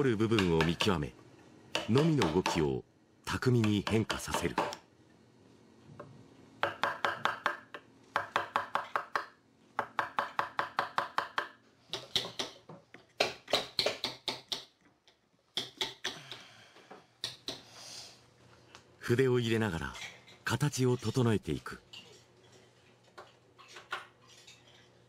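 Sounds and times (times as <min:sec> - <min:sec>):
hammer tapping chisel into wood: 0:00.3 - 0:01.0, 0:01.7 - 0:02.7, 0:03.6 - 0:04.8, 0:06.6 - 0:14.8.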